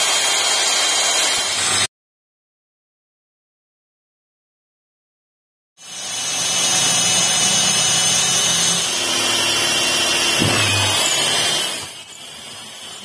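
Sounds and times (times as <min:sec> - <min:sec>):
electric drill boring into wood: 0:00.0 - 0:01.9, 0:05.8 - 0:13.0.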